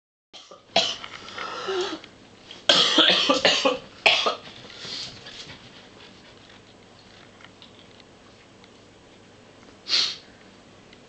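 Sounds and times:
person coughing: 0:00.4 - 0:01.0, 0:02.7 - 0:04.4.

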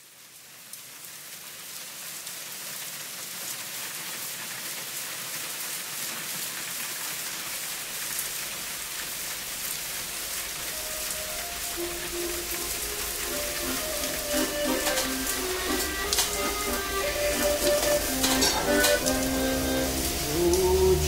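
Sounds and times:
steady rain falling: 0:00.0 - 0:21.0
sharp raindrop taps: 0:09.6 - 0:20.7.

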